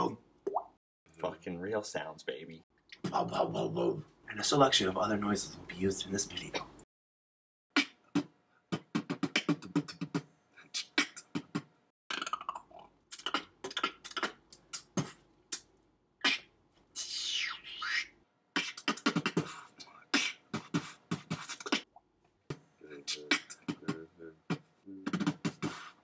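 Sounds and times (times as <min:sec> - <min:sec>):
beatboxing percussive mouth hits: 0:07.8 - 0:10.2, 0:10.8 - 0:17.3, 0:18.6 - 0:19.6, 0:20.2 - 0:26.0
whistle-like mouth noises: 0:13.4 - 0:19.5, 0:20.2 - 0:21.9, 0:23.0 - 0:26.0.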